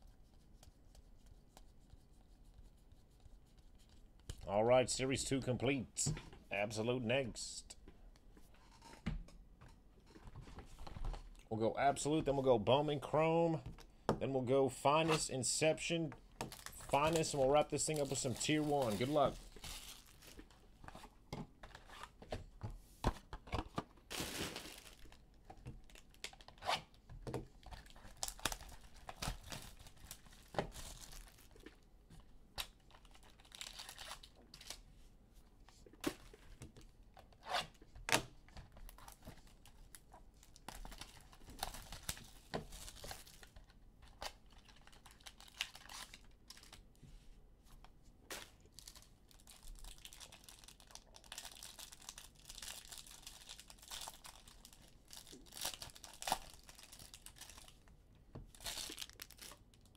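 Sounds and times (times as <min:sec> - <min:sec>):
wrappers crinkling: 0:16.5 - 0:20.6, 0:24.0 - 0:26.7, 0:32.7 - 0:34.8, 0:44.2 - 0:46.8, 0:48.5 - 0:57.9, 0:58.5 - 0:59.9
card wrappers tearing: 0:16.6 - 0:20.4.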